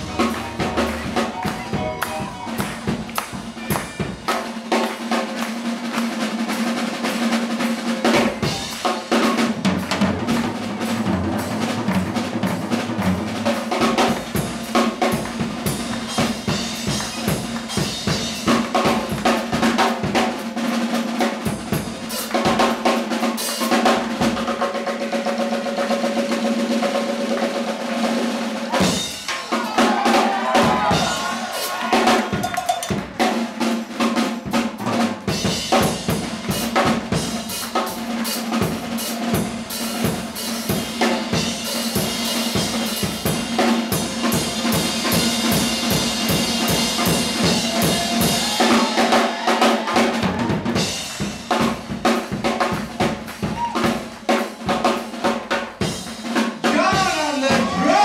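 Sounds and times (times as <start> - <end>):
bass drum kicks: 0.0 - 4.2
snare drum strokes and rolls: 0.0 - 58.0.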